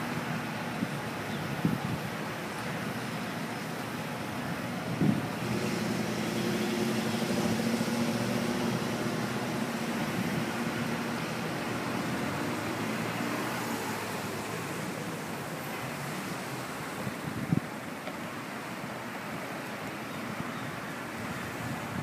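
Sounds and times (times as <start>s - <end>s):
engine low hum: 0.0s - 22.0s.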